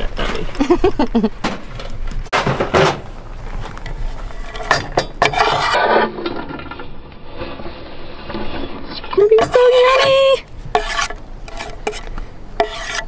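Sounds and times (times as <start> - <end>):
knife scraping on wooden board: 4.3 - 6.1, 8.3 - 13.0.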